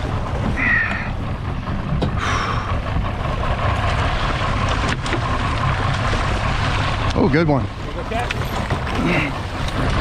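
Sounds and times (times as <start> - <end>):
boat motor running low: 0.0 - 10.0
water sloshing along hull: 0.0 - 10.0
wind: 0.0 - 10.0.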